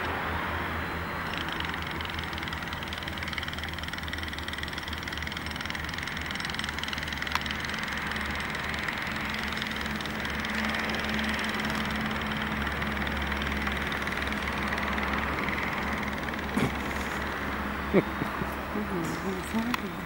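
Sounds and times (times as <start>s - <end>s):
constant hiss: 0.0s - 20.0s
low engine-like hum: 0.0s - 20.0s.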